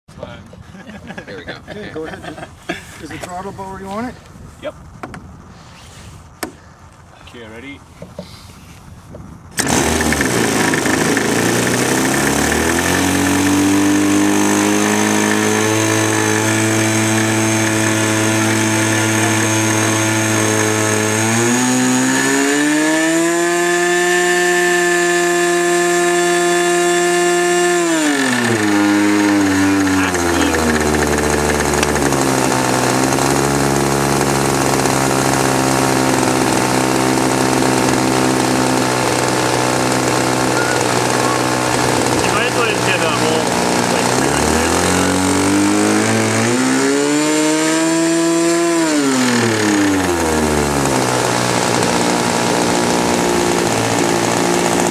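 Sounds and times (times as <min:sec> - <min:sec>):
electric starter spinning: 0:09.5 - 0:54.9
model aircraft engine running: 0:09.6 - 0:54.9.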